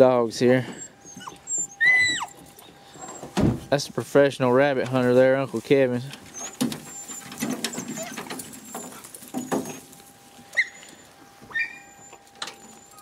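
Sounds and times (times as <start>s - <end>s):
dogs whining: 0.6s - 3.4s, 6.2s - 13.0s
knocks and rustling: 6.2s - 10.0s.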